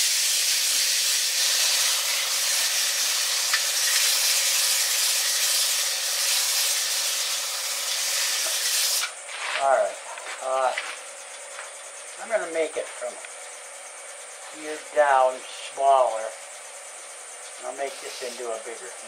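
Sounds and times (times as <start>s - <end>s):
sandpaper rasping on wood: 0.0s - 9.6s, 17.6s - 18.8s
faint lathe motor hum: 0.2s - 19.0s.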